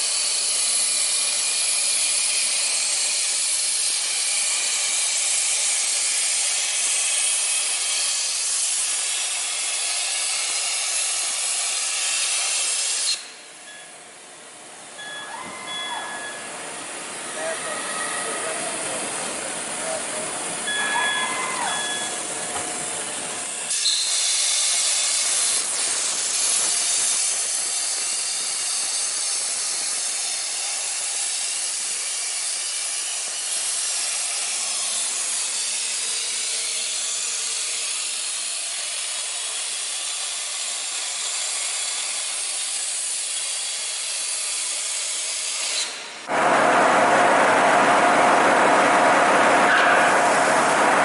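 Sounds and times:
plasma torch hissing: 22.1 - 31.8.

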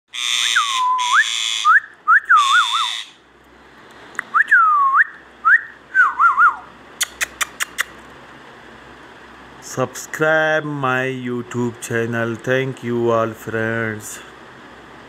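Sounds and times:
parakeet whistling a swooping tune: 0.2 - 3.2, 4.3 - 6.7
sharp clicks: 7.0 - 8.1.

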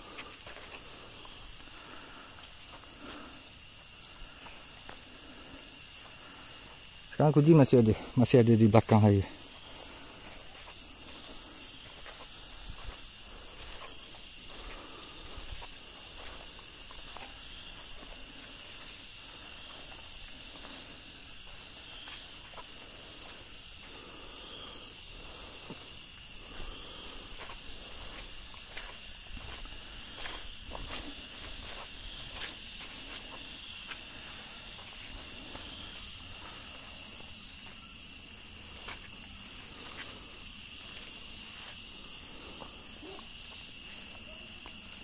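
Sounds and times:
night insects trilling: 0.0 - 45.0
footfalls and rustles on ground: 25.6 - 37.8.

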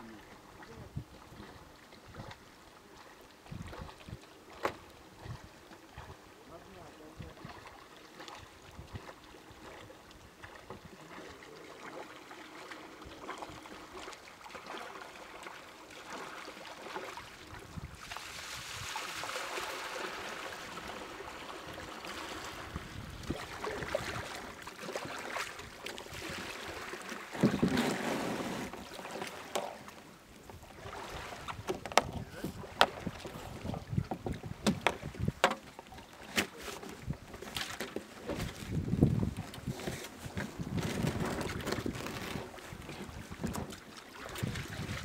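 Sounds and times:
water splashing: 6.8 - 45.0
kayak paddle strokes: 7.3 - 45.0
wind noise: 31.4 - 35.4, 38.4 - 43.7, 44.3 - 45.0.

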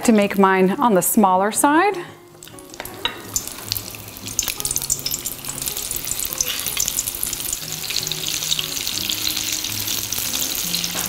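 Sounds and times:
batter deep-frying in oil: 2.4 - 11.0.

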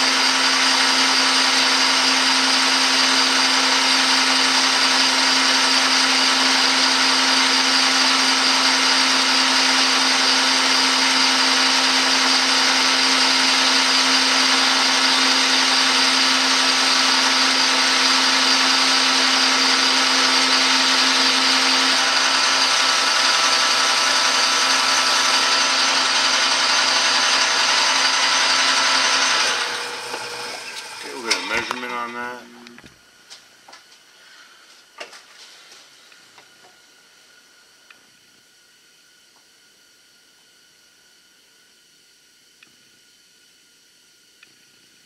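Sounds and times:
metal lathe whirring: 0.0 - 32.6.

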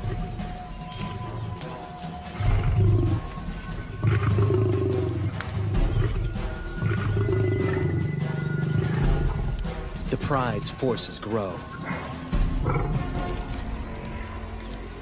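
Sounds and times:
lions growling: 0.0 - 10.0, 11.6 - 15.0
background music: 0.0 - 15.0.

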